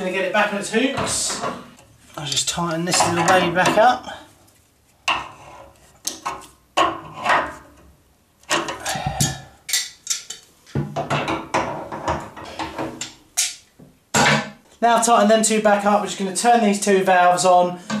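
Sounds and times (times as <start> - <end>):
pliers clicking on metal nut: 9.7 - 10.4.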